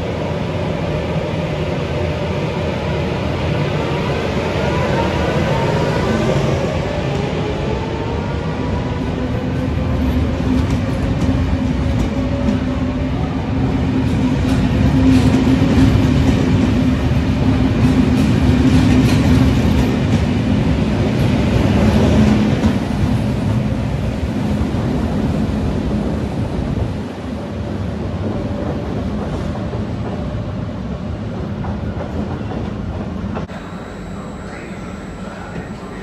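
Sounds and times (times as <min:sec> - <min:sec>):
rail clicks: 0:31.6 - 0:36.0
electric train motor hum: 0:33.5 - 0:36.0.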